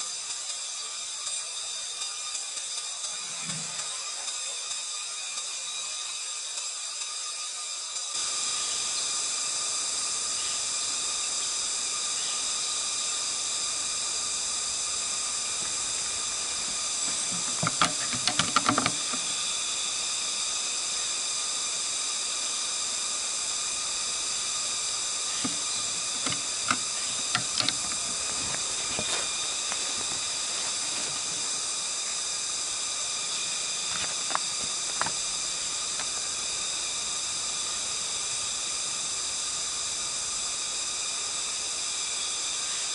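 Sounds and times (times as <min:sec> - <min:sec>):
steady high hiss: 0:00.0 - 0:42.9
even whine: 0:10.1 - 0:39.4.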